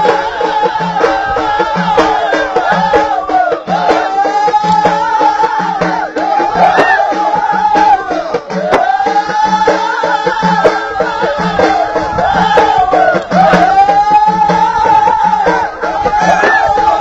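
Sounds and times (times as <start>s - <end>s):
frame drums beating: 0.0s - 17.0s
voices chanting: 0.0s - 17.0s.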